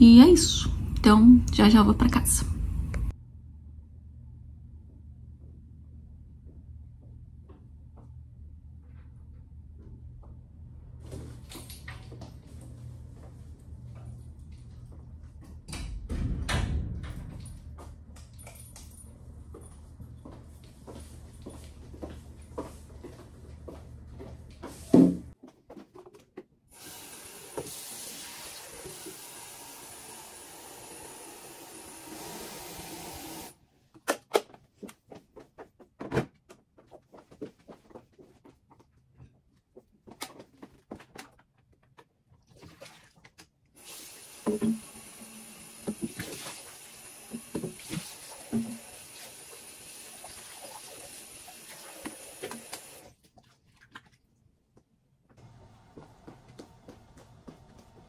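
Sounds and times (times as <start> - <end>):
tap water running into kettle: 26.8 - 33.5, 43.8 - 53.1.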